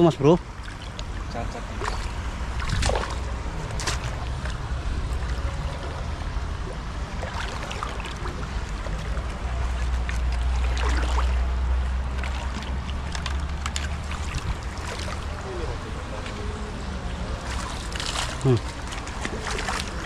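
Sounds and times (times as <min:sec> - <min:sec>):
river water flowing and lapping: 0:00.0 - 0:20.0
net splashing in water: 0:01.8 - 0:04.6, 0:10.0 - 0:15.4, 0:17.4 - 0:20.0
wind rumbling on microphone: 0:01.8 - 0:20.0.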